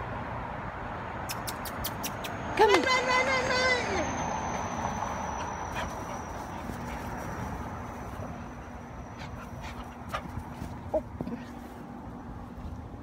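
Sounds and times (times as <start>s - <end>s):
low hum: 3.0s - 13.0s.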